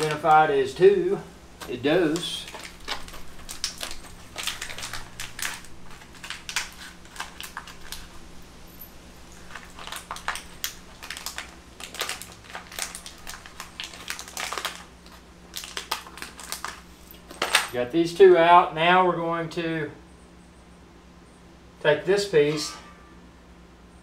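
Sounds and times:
plastic bag crinkling: 0:00.0 - 0:00.6, 0:01.5 - 0:17.8.

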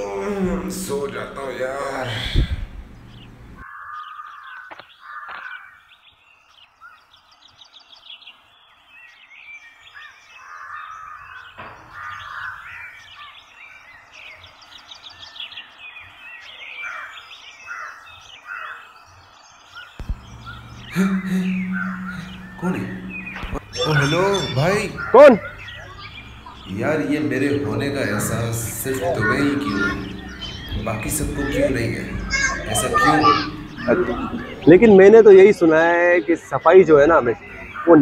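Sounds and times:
outdoor background hiss: 0:00.0 - 0:05.0, 0:05.6 - 0:38.0
crows cawing: 0:00.0 - 0:05.9, 0:10.0 - 0:13.5, 0:16.7 - 0:35.8, 0:36.4 - 0:38.0
birds chirping: 0:00.0 - 0:38.0.

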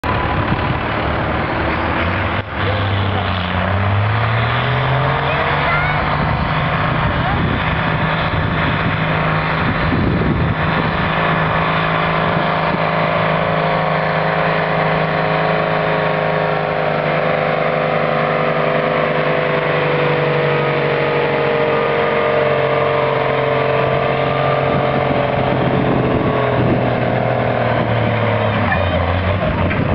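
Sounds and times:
tractor diesel engine running hard: 0:00.0 - 0:29.9.

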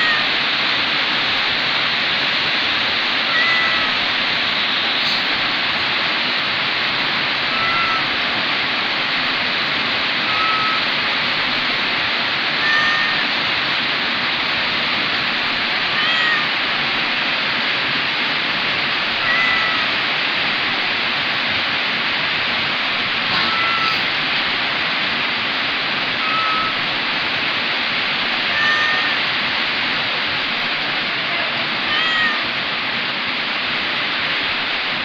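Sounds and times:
kitten mewing: 0:00.0 - 0:00.3, 0:03.3 - 0:04.0, 0:07.5 - 0:08.2, 0:10.2 - 0:10.9, 0:12.5 - 0:13.3, 0:15.8 - 0:16.6, 0:19.2 - 0:20.0, 0:23.2 - 0:24.2, 0:26.2 - 0:26.8, 0:28.4 - 0:29.2, 0:31.8 - 0:32.5
steady loud hiss: 0:00.0 - 0:35.0.

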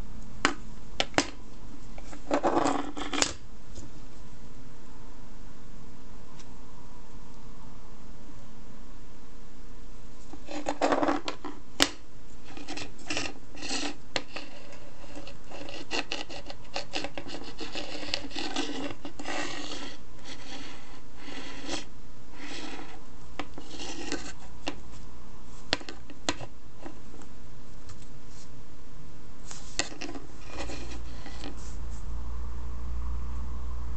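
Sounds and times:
scratchy rubbing and scraping: 0:01.8 - 0:03.9, 0:10.2 - 0:27.1, 0:29.4 - 0:32.1.

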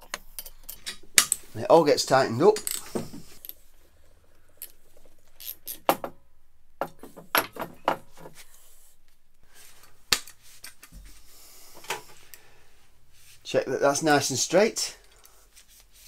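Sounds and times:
metal parts clinking and knocking: 0:02.5 - 0:03.6, 0:06.8 - 0:08.3.

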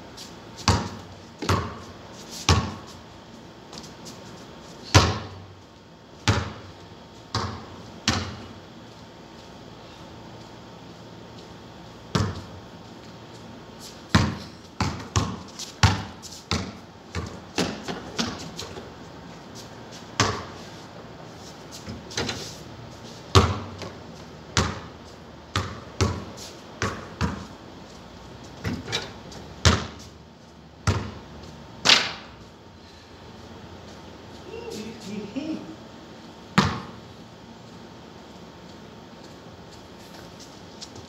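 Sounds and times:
ball hitting hoop: 0:00.6 - 0:01.8, 0:02.5 - 0:02.9, 0:04.9 - 0:05.4, 0:06.2 - 0:06.7, 0:07.3 - 0:08.5, 0:12.1 - 0:12.6, 0:14.1 - 0:18.8, 0:20.2 - 0:20.6, 0:23.3 - 0:24.0, 0:24.6 - 0:24.9, 0:25.5 - 0:27.5, 0:28.6 - 0:30.0, 0:30.8 - 0:31.2, 0:31.8 - 0:32.3, 0:36.5 - 0:37.0
basketball bouncing on concrete: 0:00.6 - 0:02.9, 0:04.8 - 0:05.5, 0:06.2 - 0:08.6, 0:12.1 - 0:12.6, 0:14.1 - 0:18.9, 0:20.1 - 0:20.6, 0:23.3 - 0:27.6, 0:28.6 - 0:30.1, 0:30.8 - 0:32.3, 0:36.5 - 0:37.0.

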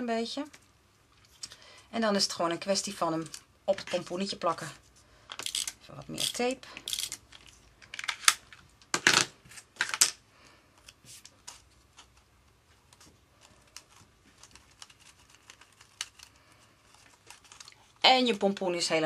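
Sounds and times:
paper rustling: 0:10.8 - 0:18.1.

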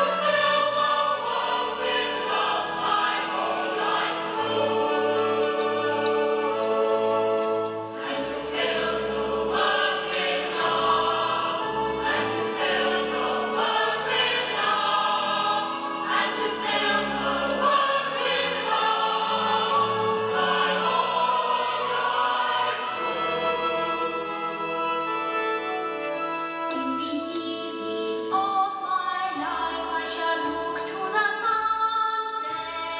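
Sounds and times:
choir singing with instruments: 0:00.0 - 0:27.0.

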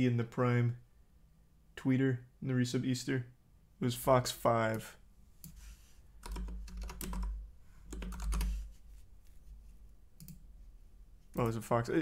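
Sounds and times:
typing on computer keyboard: 0:06.2 - 0:08.7, 0:10.2 - 0:10.4.

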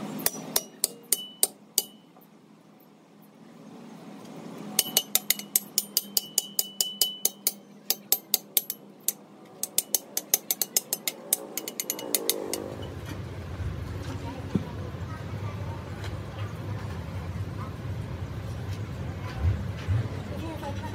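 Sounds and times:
low steady rumble: 0:00.0 - 0:20.9
hammer striking steel tube: 0:00.2 - 0:02.2, 0:04.8 - 0:12.8.

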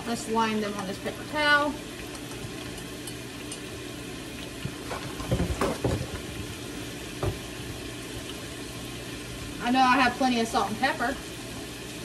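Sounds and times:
fries sizzling in hot oil: 0:00.0 - 0:12.0.

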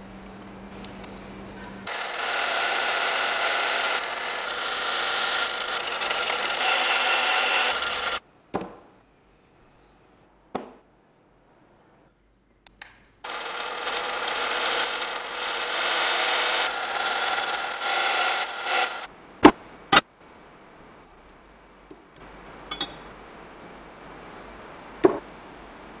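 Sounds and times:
drill press boring steel: 0:01.9 - 0:08.2, 0:13.3 - 0:19.1.

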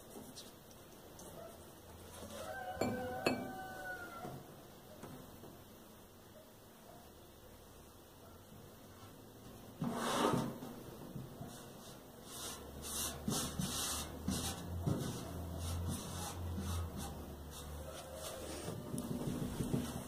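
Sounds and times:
hand brushing paper on metal: 0:11.4 - 0:20.0.

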